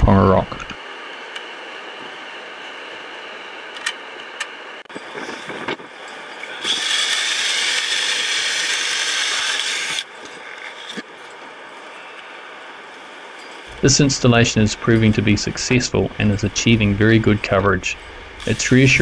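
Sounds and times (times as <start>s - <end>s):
power drill running: 6.5s - 10.1s, 18.0s - 19.0s.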